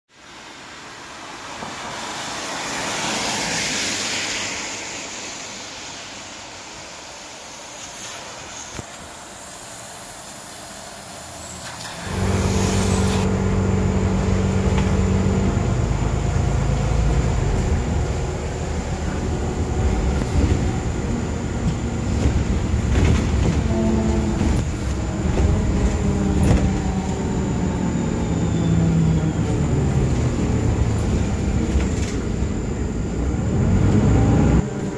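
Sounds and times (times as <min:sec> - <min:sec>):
car tyres hissing on wet road: 0:00.2 - 0:13.7
bus engine humming: 0:06.6 - 0:34.9.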